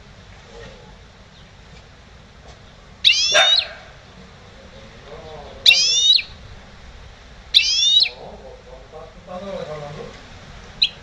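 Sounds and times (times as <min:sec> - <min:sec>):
bird singing bright high phrases: 0:03.0 - 0:03.9, 0:05.6 - 0:06.4, 0:07.5 - 0:08.2, 0:10.8 - 0:11.0.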